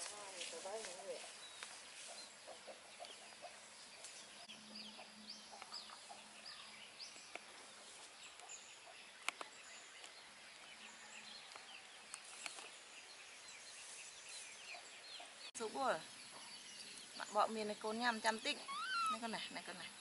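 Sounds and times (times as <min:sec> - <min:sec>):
faint birdsong chirps: 0:00.0 - 0:20.0.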